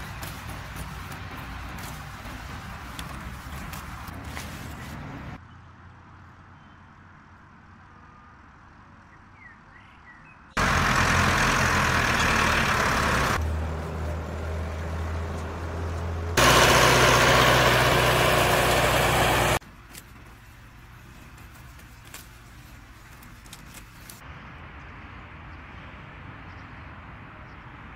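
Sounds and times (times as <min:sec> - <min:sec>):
tractor engine running: 0:00.0 - 0:04.7, 0:10.6 - 0:24.1.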